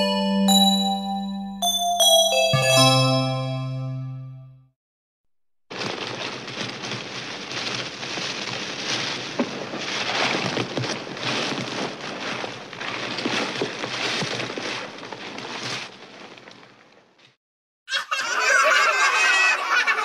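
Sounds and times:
wrapping paper rustling and crinkling: 0:05.7 - 0:17.2.

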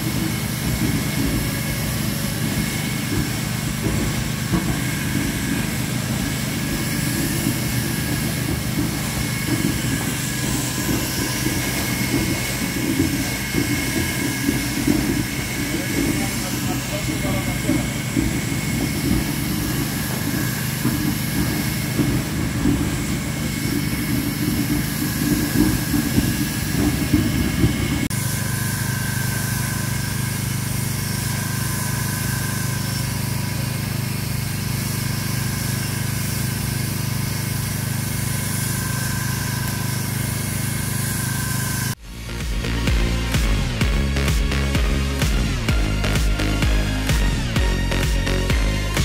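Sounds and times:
machine running noise: 0:00.0 - 0:49.0
power float motor hum and whine: 0:00.0 - 0:49.0
music: 0:42.0 - 0:49.0.

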